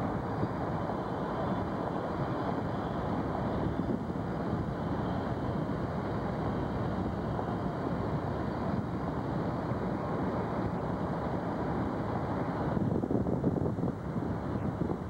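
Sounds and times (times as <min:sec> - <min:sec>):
wind rush: 0:00.0 - 0:15.0.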